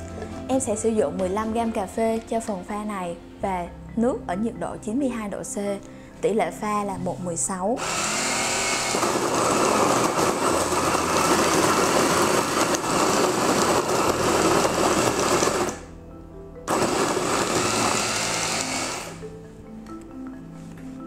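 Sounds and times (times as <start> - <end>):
electric coffee grinder running: 7.8 - 15.9, 16.7 - 19.2.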